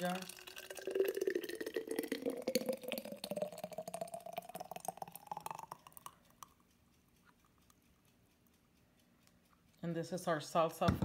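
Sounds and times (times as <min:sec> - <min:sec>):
thick sauce gurgling into jar: 0:00.0 - 0:06.2.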